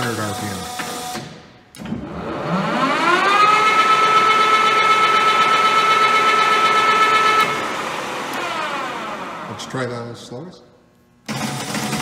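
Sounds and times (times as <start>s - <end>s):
lathe spindle whining: 2.1s - 9.6s.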